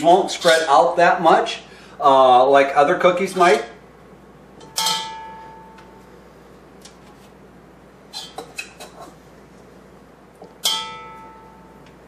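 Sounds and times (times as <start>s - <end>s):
metal bowl ringing: 4.6s - 6.0s, 10.6s - 11.9s.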